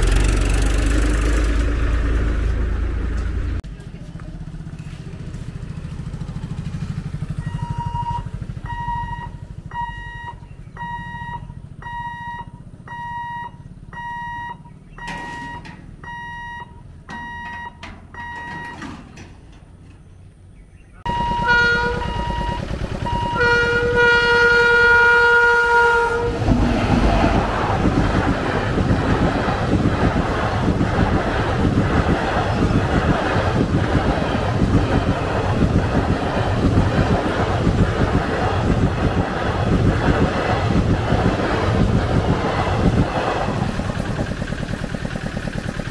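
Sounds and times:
train coaches rumbling past: 0.0s - 10.7s, 16.8s - 45.9s
electronic warning hooter beeping: 7.4s - 18.9s, 21.1s - 24.5s
train horn blasts: 21.1s - 27.5s.

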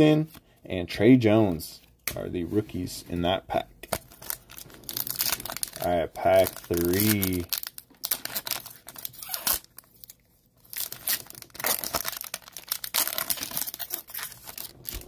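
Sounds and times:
foil wrapper tearing and crinkling: 4.0s - 15.0s.

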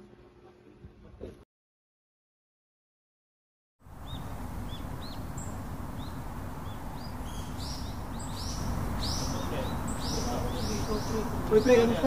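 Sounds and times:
small birds chirping: 3.9s - 12.0s
steady low rush: 3.9s - 12.0s.

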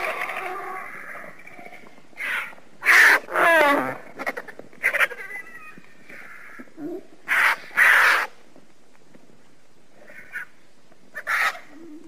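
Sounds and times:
vulture calling: 2.2s - 8.4s, 10.0s - 12.0s.

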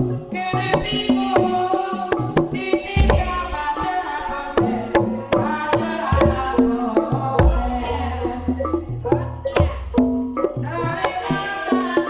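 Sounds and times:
tuned percussion notes ringing: 0.0s - 12.0s
deep drum strokes: 2.9s - 4.0s.

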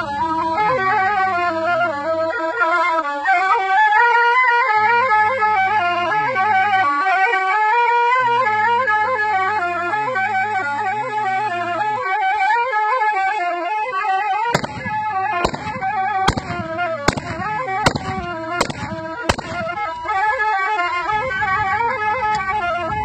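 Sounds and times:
folk melody on wooden wind instrument: 0.0s - 23.0s
low steady drone: 14.2s - 23.0s
sharp knocks: 14.6s - 19.7s.

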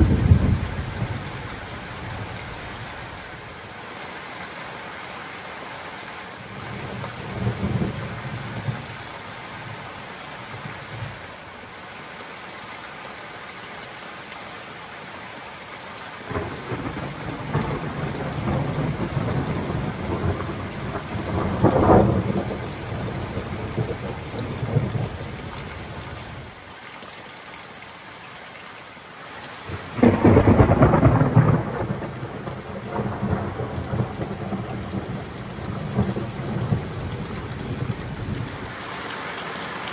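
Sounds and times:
thunder rumbling: 0.0s - 2.6s, 16.3s - 26.0s, 29.7s - 38.8s
steady rain: 0.0s - 39.9s.

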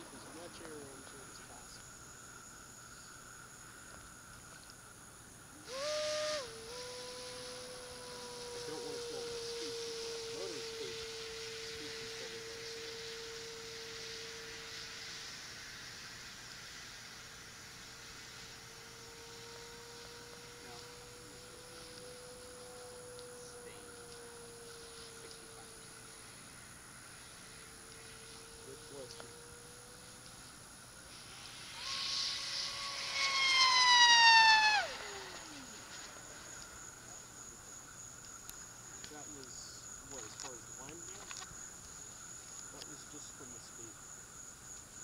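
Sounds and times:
constant hiss: 0.0s - 45.0s
model plane motor whine: 5.6s - 15.1s, 18.2s - 26.3s, 27.2s - 30.5s, 31.2s - 36.6s.

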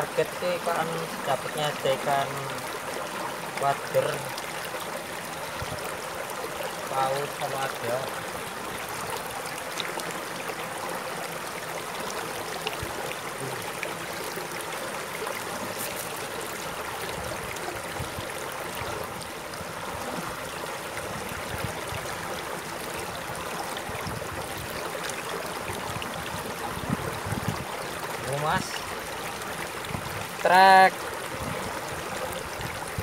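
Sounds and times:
stream flowing over stones: 0.0s - 33.0s.

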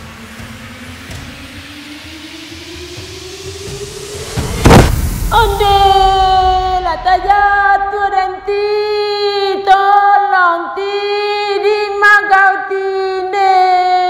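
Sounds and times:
high voice singing: 5.3s - 14.0s.

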